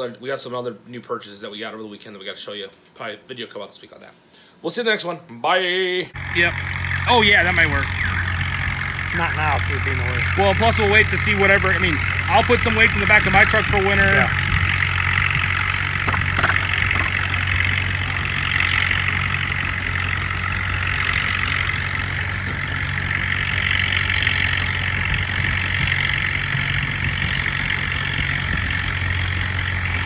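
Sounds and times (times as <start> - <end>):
tractor engine droning: 6.2 - 30.0.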